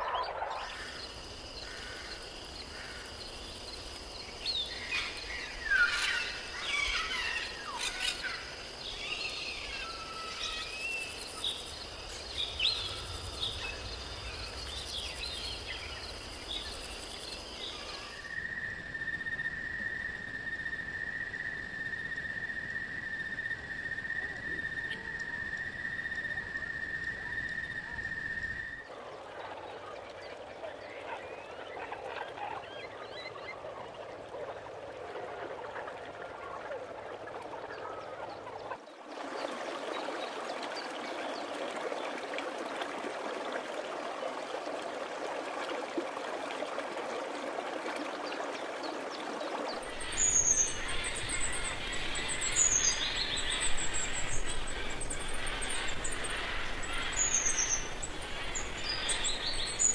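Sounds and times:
insects droning: 0.0 - 59.9.

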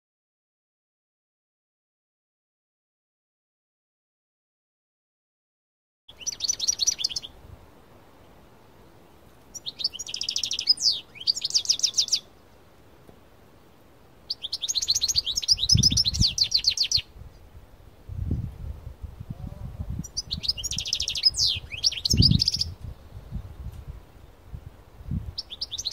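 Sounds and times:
goldfinch twittering trills: 6.1 - 7.3, 9.5 - 12.3, 14.3 - 17.1, 20.0 - 22.8, 25.4 - 25.9.

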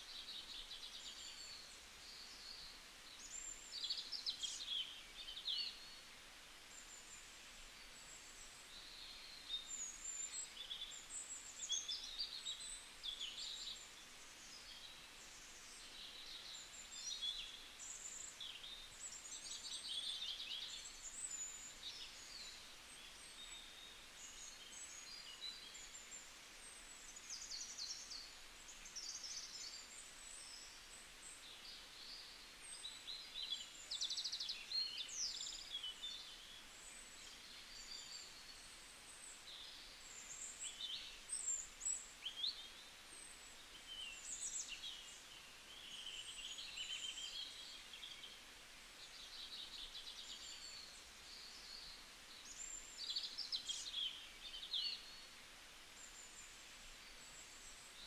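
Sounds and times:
faint steady hiss: 0.0 - 58.0
small birds chirping: 0.0 - 58.0.

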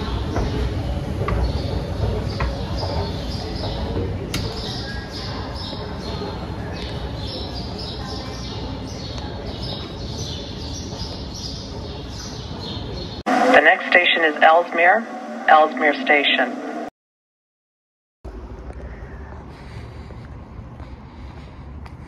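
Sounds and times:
low rumble: 13.3 - 16.9.

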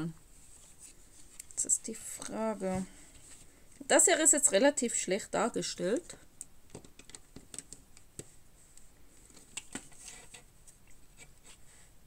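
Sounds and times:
plastic building bricks clicking: 6.4 - 8.1.

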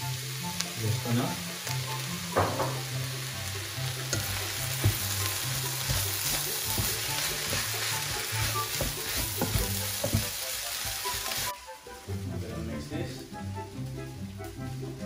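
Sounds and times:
background music with bass: 0.0 - 15.0
rice sizzling in a pan: 0.0 - 15.0
spatula knocking against pan: 4.1 - 10.4
wooden spatula scraping a pan: 4.1 - 11.5.

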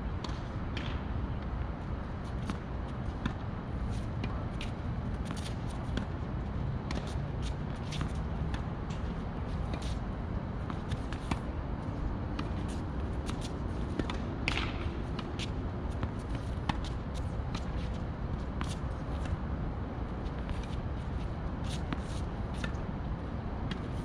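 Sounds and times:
tennis balls struck and bouncing: 0.2 - 1.1, 12.3 - 17.7.

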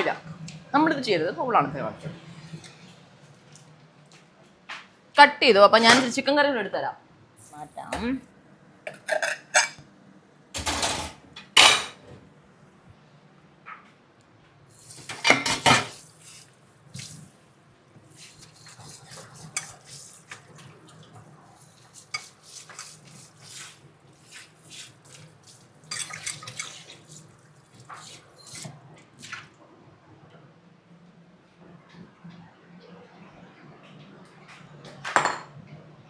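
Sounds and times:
dishes and utensils clinking: 8.9 - 9.8, 10.6 - 12.0, 15.1 - 16.0, 25.9 - 26.9.

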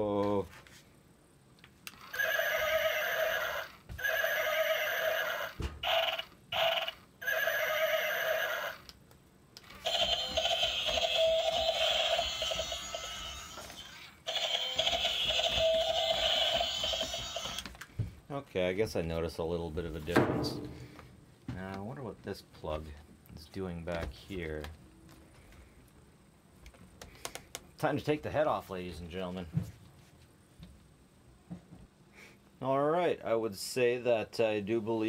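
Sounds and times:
tinny electronic toy sound effects: 1.9 - 8.9, 9.6 - 17.7.

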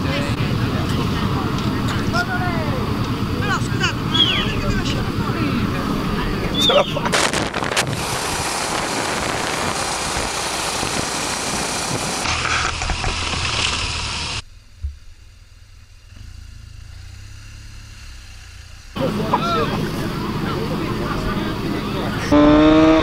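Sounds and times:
motorcycle engine running: 0.0 - 23.0
wind rush on microphone: 5.8 - 12.3.

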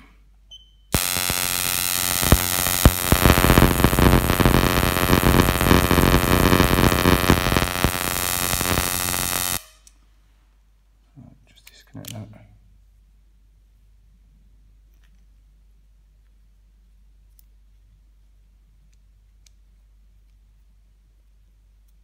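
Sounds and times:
crackling electric spark buzz: 0.9 - 9.9
sharp spark cracks: 1.0 - 9.9.

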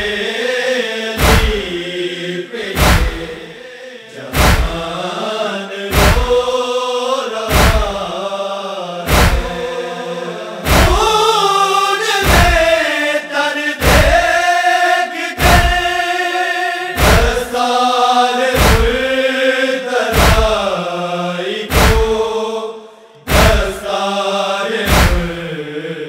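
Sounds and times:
men chanting a lament in unison: 0.0 - 26.0
chest-beating thumps: 1.2 - 1.8, 2.8 - 3.5, 4.3 - 4.9, 5.9 - 6.5, 7.5 - 8.0, 9.1 - 9.7, 10.7 - 11.2, 12.2 - 12.7, 13.8 - 14.3, 15.4 - 15.9, 17.0 - 17.5, 18.6 - 19.1, 20.2 - 20.6, 21.7 - 22.3, 23.3 - 23.8, 24.9 - 25.4.

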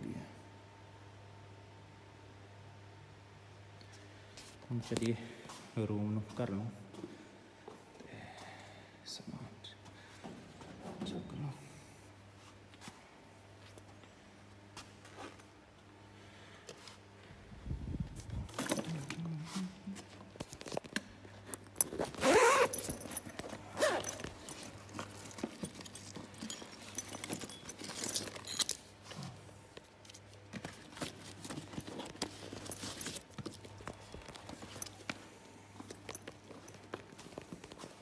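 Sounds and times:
steady low hum: 0.0 - 38.0
bag rustling: 21.6 - 29.4, 30.3 - 38.0
zip being pulled: 21.9 - 23.0, 23.7 - 24.2.

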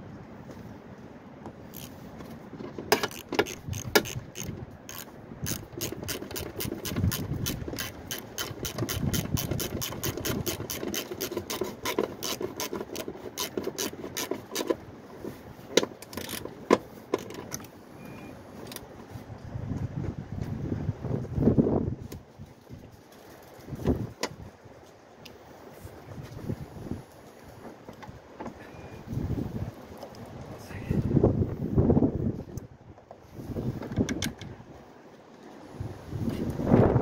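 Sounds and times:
ratchet wrench clicking: 1.7 - 1.9, 2.9 - 14.8.

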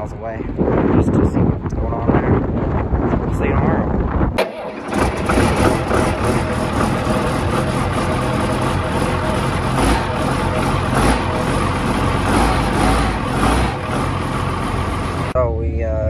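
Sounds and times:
diesel engine idling: 4.4 - 15.4.

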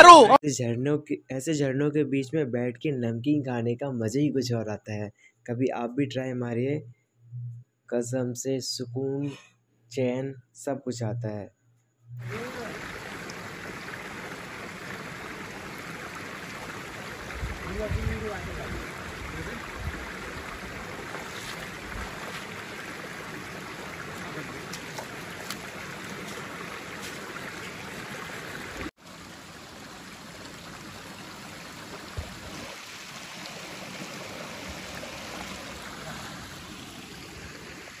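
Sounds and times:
stream water flowing over rocks: 12.2 - 38.0.

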